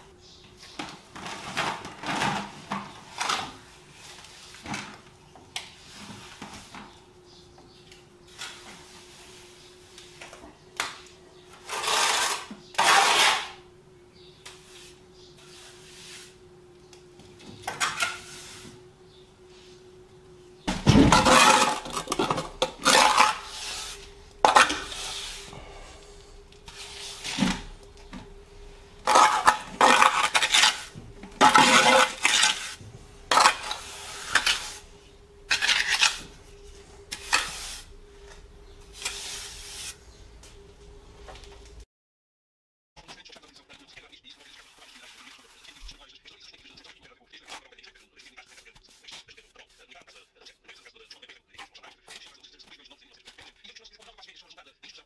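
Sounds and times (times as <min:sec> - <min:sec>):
faint steady hum: 0:00.0 - 0:41.8
metal trowel scraping render: 0:11.6 - 0:13.6, 0:17.8 - 0:18.8, 0:21.0 - 0:25.5, 0:29.0 - 0:34.8, 0:35.5 - 0:36.4, 0:37.1 - 0:37.9.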